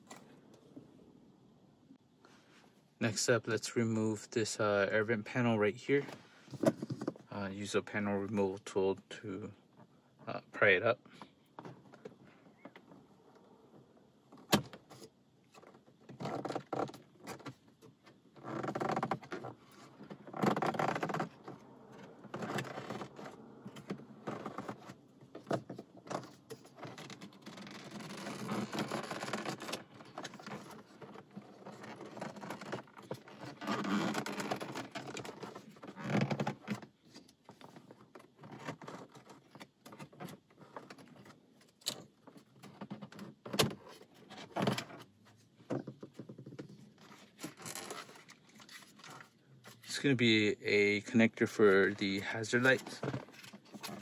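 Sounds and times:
plastic trim scraping and creaking: 14.3 - 54.0.

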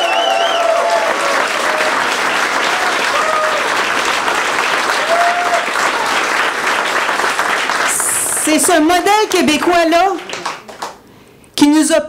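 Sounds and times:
people cheering: 0.0 - 8.5
audience applauding: 0.0 - 11.0.

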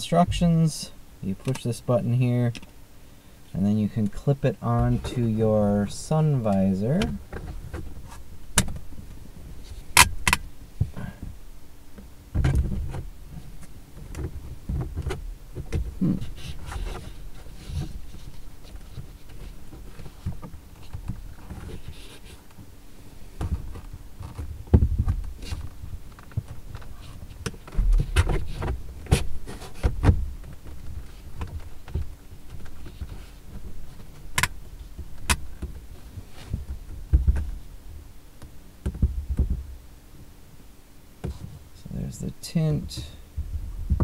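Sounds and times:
low thumps: 42.8 - 44.0.

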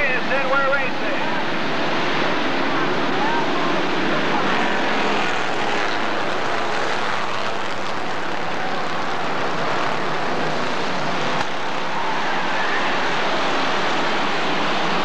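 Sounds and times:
race car engines: 0.0 - 15.0.

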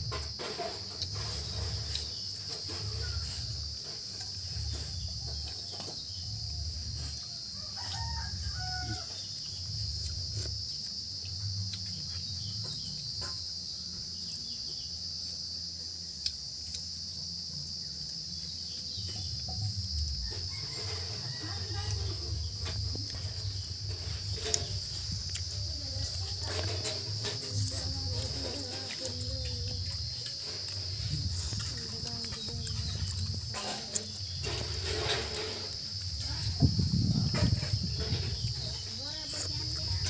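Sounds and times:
rooster crowing: 6.4 - 9.5, 20.1 - 23.5.

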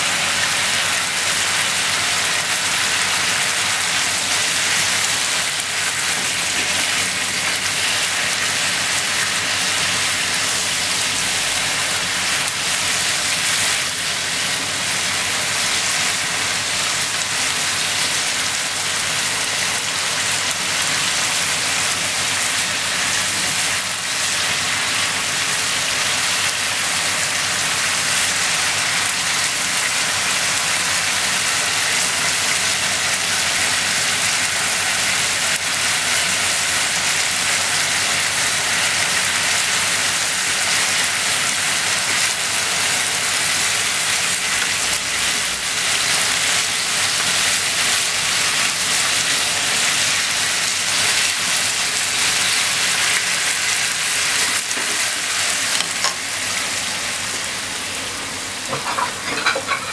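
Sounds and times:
food sizzling in a frying pan: 0.0 - 59.9.

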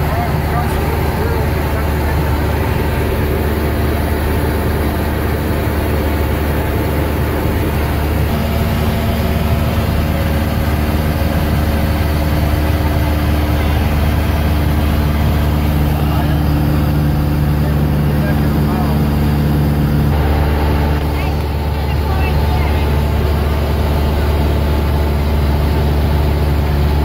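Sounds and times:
airplane engine and propeller droning: 0.0 - 27.0.

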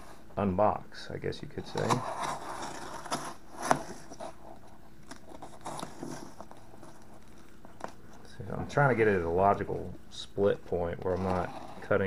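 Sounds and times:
hands rustling on cardboard: 1.6 - 10.0.

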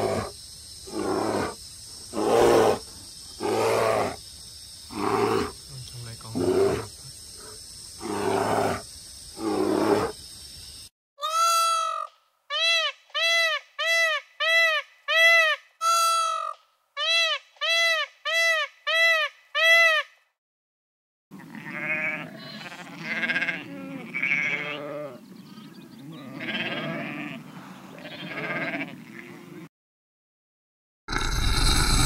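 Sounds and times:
peacock calling: 11.2 - 20.1
sheep bleating: 21.4 - 25.2, 26.1 - 29.6.

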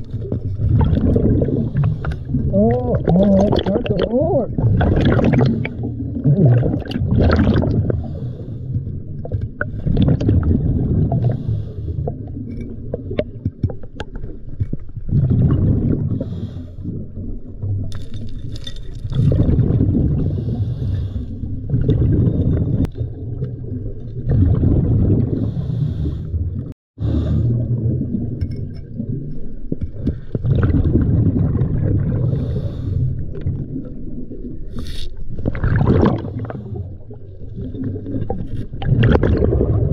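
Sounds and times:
rush of exhaled bubbles: 0.0 - 39.9
diver breathing through regulator: 11.2 - 12.2, 16.1 - 16.9, 20.1 - 21.7, 25.3 - 26.4, 27.0 - 27.7, 32.2 - 33.3
light clicks and scrapes: 34.8 - 35.2.

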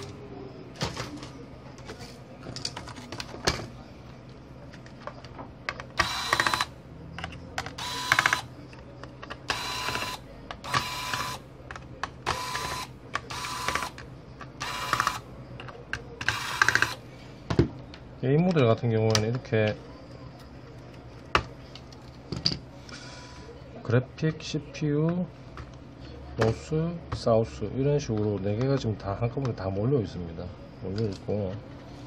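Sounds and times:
electric screwdriver whirring: 6.0 - 6.7, 7.8 - 8.5, 9.5 - 11.4, 12.3 - 14.0, 14.6 - 15.2, 16.2 - 17.0.

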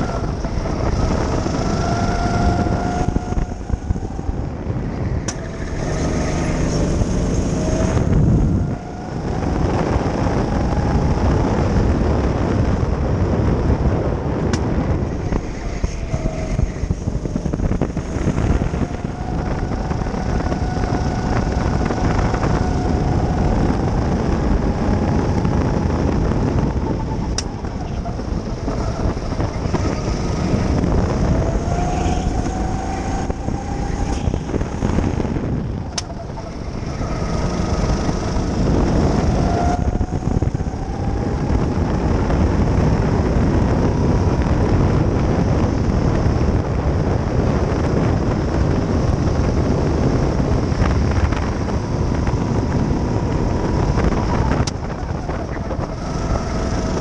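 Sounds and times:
go-kart engine whine: 0.0 - 57.0
road rumble: 0.0 - 57.0
wind on microphone: 0.0 - 57.0.

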